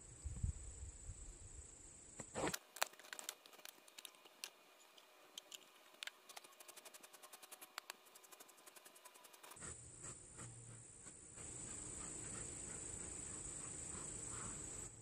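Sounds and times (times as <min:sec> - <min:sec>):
crickets chirring: 0:00.0 - 0:09.6, 0:11.0 - 0:15.0
quick even ticking: 0:06.3 - 0:09.6.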